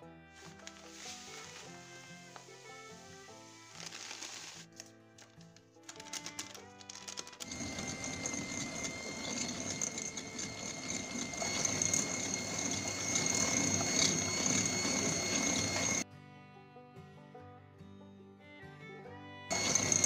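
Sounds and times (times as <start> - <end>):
soft background music: 0.0 - 11.4
electric hand mixer whining: 0.6 - 4.2, 7.4 - 16.0, 19.5 - 20.0.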